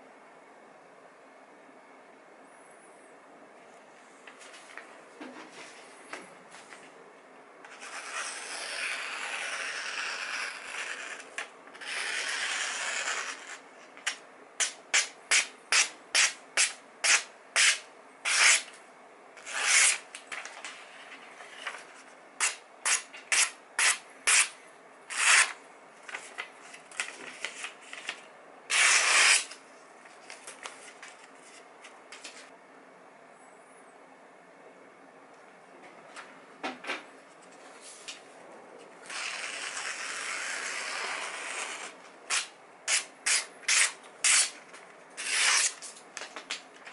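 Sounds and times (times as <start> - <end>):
knife slicing paper: 19.4 - 20.0, 25.1 - 29.6, 39.0 - 44.6, 45.2 - 46.0.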